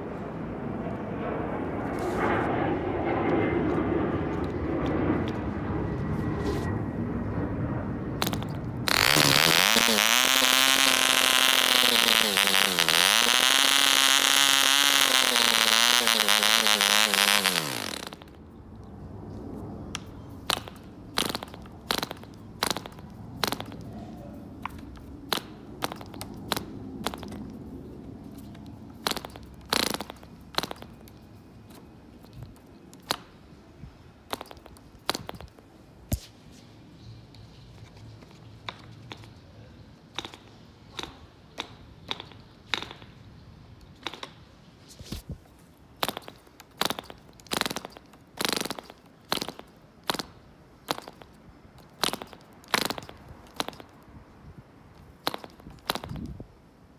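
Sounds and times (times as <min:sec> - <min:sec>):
model engine high-pitched buzz: 0:08.2 - 0:18.2
propeller flicked clicks and pops: 0:08.2 - 0:19.0, 0:19.9 - 0:24.0, 0:24.6 - 0:27.7, 0:28.3 - 0:33.4, 0:34.3 - 0:36.2, 0:37.3 - 0:39.5, 0:40.1 - 0:43.2, 0:43.8 - 0:44.5, 0:46.0 - 0:54.2, 0:54.9 - 0:56.4.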